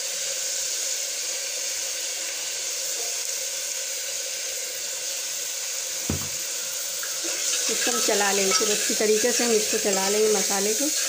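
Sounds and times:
onions frying in hot oil: 0.0s - 11.0s
short knock: 6.0s - 6.4s.

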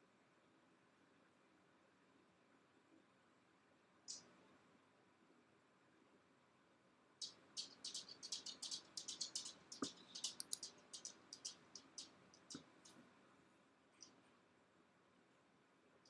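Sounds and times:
faint high-pitched chirps: 4.0s - 4.6s, 7.2s - 13.1s
sharp clicks: 7.2s - 13.0s.

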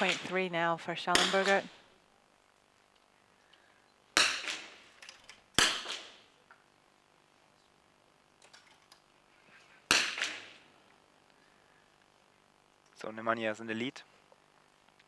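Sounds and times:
rifle shots: 0.0s - 0.4s, 1.1s - 1.8s, 4.2s - 6.3s, 9.9s - 10.7s.

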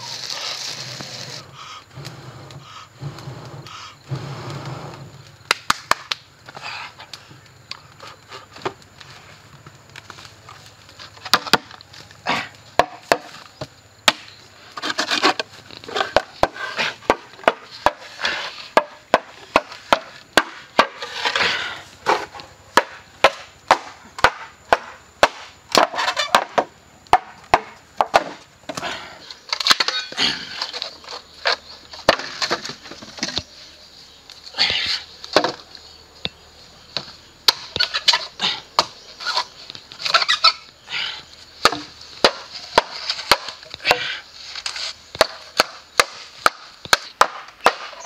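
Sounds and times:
bamboo cracking and splintering: 5.2s - 33.5s, 37.0s - 48.0s
wood striking bamboo knocks: 11.2s - 11.8s, 14.0s - 14.3s, 22.8s - 28.8s, 35.3s - 35.6s, 41.6s - 44.0s, 45.1s - 48.0s.

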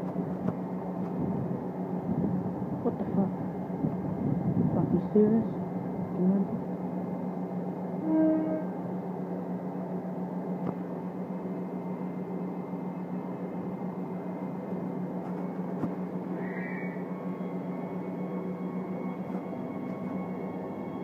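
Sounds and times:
train equipment humming: 0.0s - 21.0s
faint high whine: 11.1s - 21.0s.

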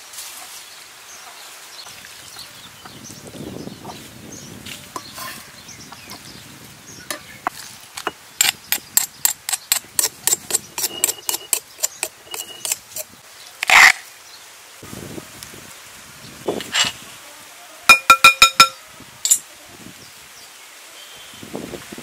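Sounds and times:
stone pestle pounding in mortar: 8.4s - 13.0s, 17.9s - 18.8s.

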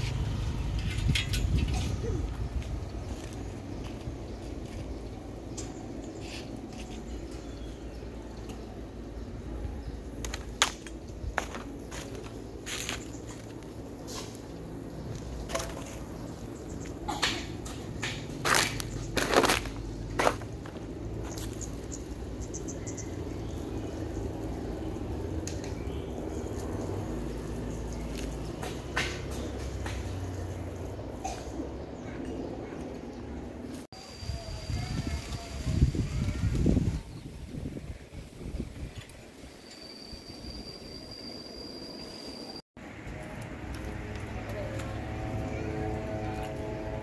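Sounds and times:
low outdoor rumble: 0.0s - 33.9s
footstep crunching on dry leaves: 10.3s - 16.5s, 18.2s - 21.9s.

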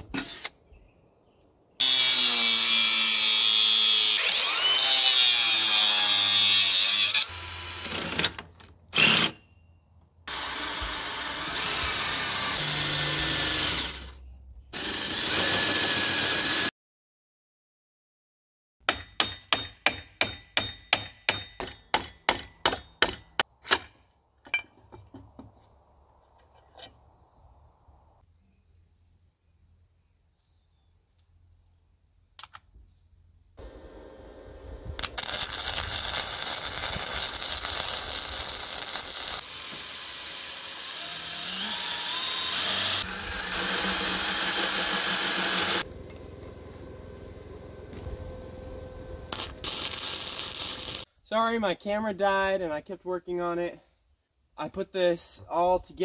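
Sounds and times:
hammer striking steel: 18.8s - 24.0s
small clicks: 32.4s - 32.7s
loud steady whirring: 42.4s - 49.4s.

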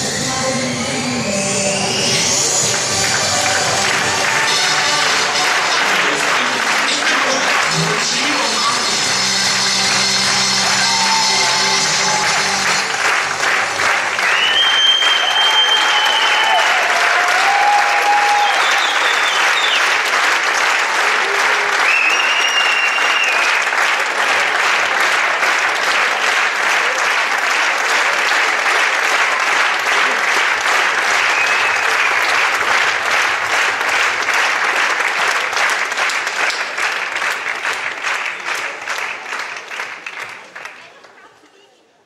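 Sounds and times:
audience applauding: 2.5s - 41.4s
high-pitched cheers: 9.8s - 20.0s, 20.8s - 23.6s.

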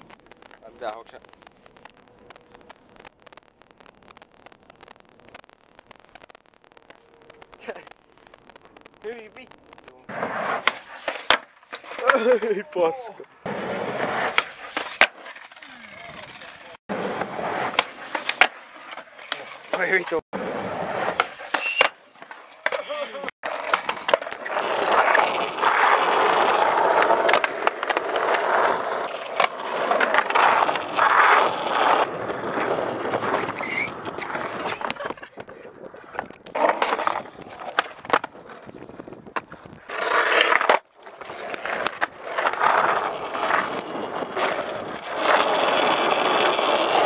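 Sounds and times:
skateboard wheels rolling on asphalt: 0.0s - 47.0s
skateboard pops and landings: 10.1s - 12.5s, 13.4s - 47.0s.

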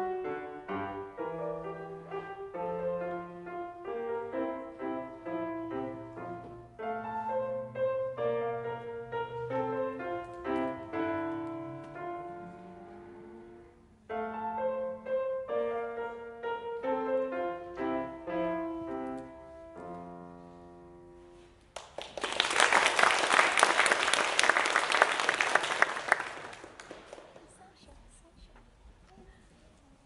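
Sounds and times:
grand piano playing: 0.0s - 21.7s
audience applause: 21.8s - 27.6s.

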